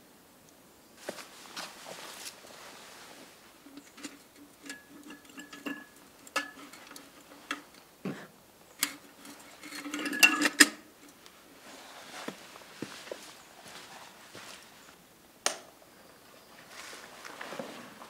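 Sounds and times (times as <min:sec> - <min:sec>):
metal lantern clicks and clinks: 0:03.7 - 0:07.8, 0:08.7 - 0:11.2.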